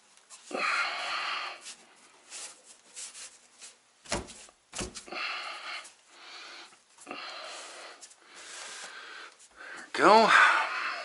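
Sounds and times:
tile rubbing and scraping: 0.3 - 6.0, 6.6 - 9.6.

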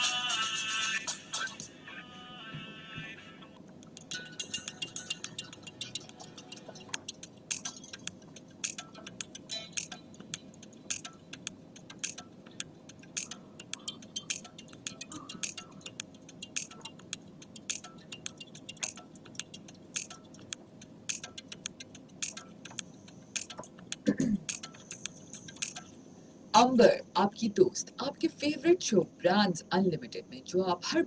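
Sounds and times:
faint steady hum: 0.0 - 31.0
sharp ticking clicks: 3.8 - 25.9.

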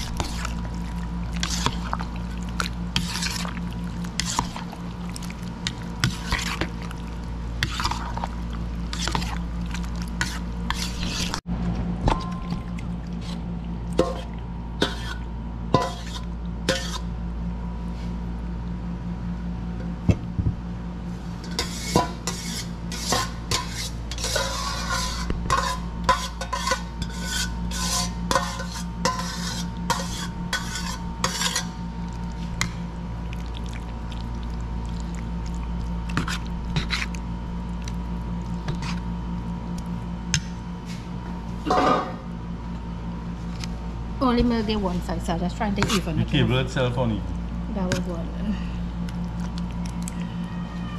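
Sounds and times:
steady low hum: 0.0 - 50.9
spoon scraping food in dish: 1.4 - 4.8, 5.6 - 6.8, 8.9 - 11.4, 14.0 - 17.1, 21.4 - 31.8, 36.1 - 37.2, 38.6 - 39.0.

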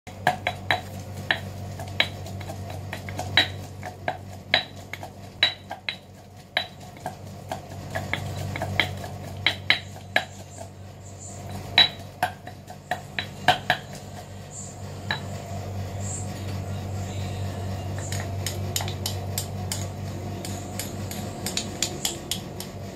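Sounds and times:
pestle knocking in stone mortar: 0.1 - 10.7, 11.5 - 14.3, 18.0 - 22.8.

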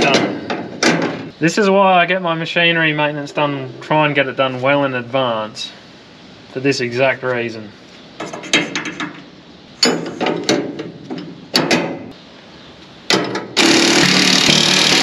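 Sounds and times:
metal clinks and knocks: 9.8 - 12.0.

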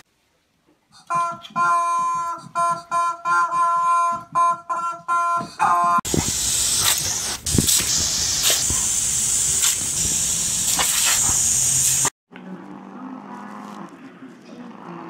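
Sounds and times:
squeaky rubber chicken toy: 1.0 - 6.0
garden hose spraying water: 6.1 - 12.1
sharp snaps: 6.1 - 12.1.

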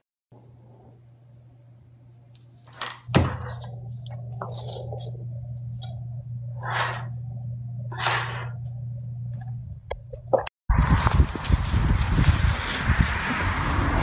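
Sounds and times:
scuffling rustles: 10.8 - 14.0.

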